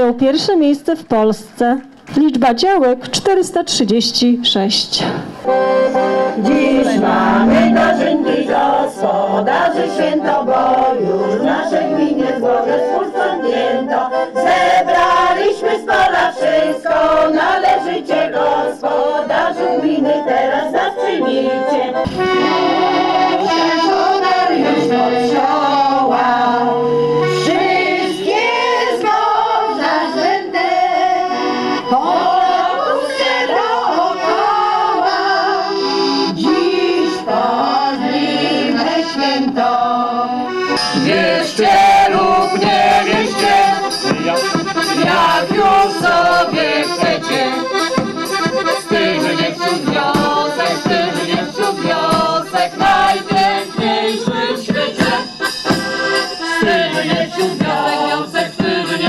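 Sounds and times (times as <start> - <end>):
accordion folk tune: 2.5 - 59.0
women singing: 6.0 - 44.0, 45.0 - 47.9, 48.7 - 55.7, 56.4 - 59.0.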